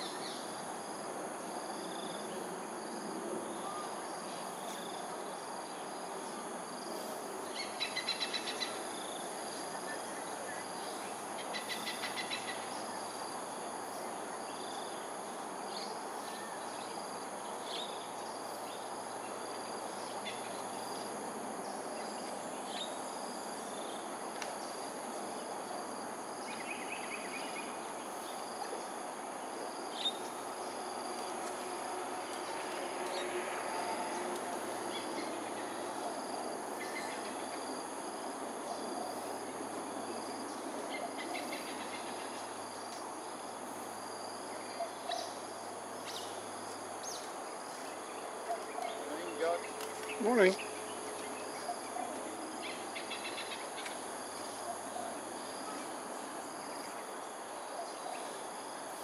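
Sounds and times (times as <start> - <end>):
background hiss: 0.0 - 59.0.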